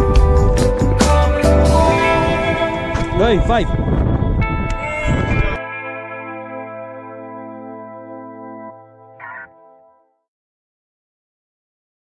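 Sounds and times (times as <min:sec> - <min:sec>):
rushing wind noise: 0:00.0 - 0:05.6
background music with long held notes: 0:00.0 - 0:10.0.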